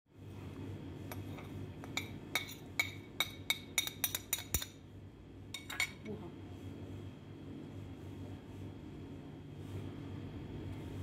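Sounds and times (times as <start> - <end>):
steady low hum: 0.1 - 11.0
metal spoon tapping ceramic plate: 1.1 - 4.8.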